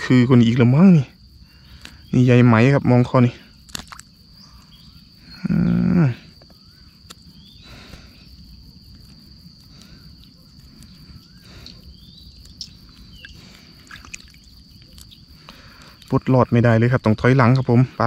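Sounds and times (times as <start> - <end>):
insects chirring: 0.0 - 18.0
small splashes in water: 3.7 - 4.1, 12.6 - 15.0.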